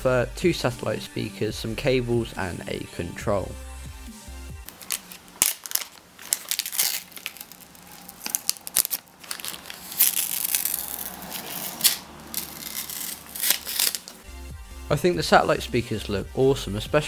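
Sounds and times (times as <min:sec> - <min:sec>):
plastic film crackling and rustling: 0:04.6 - 0:14.2.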